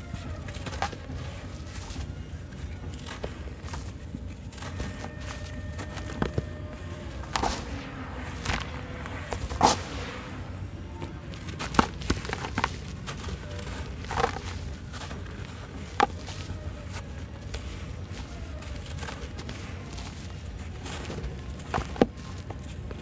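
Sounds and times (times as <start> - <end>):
low rumble: 2.6 - 18.6
sharp crunches: 3.0 - 22.7.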